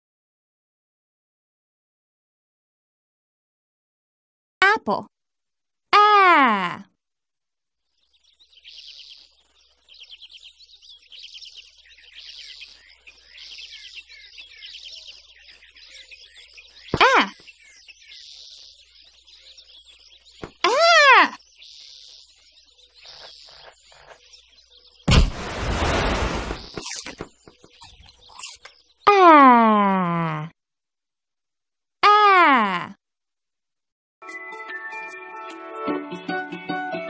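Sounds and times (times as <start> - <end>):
cartoon birds chirping: 6.0 - 6.9, 8.0 - 30.6, 32.0 - 33.0
loud burst of noise: 25.1 - 26.8.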